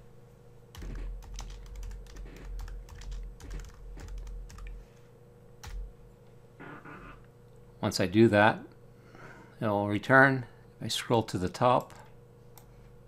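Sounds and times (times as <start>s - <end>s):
typing on a computer keyboard: 0.8s - 4.8s, 5.6s - 5.8s.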